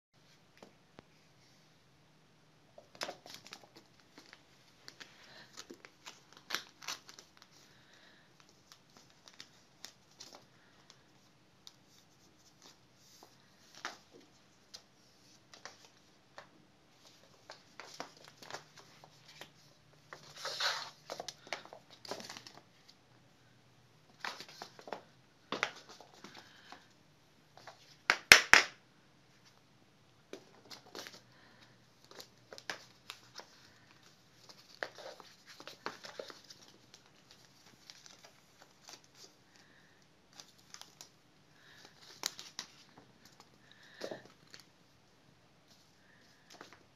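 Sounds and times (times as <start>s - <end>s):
kitten rustling and scraping: 16.9s - 22.9s.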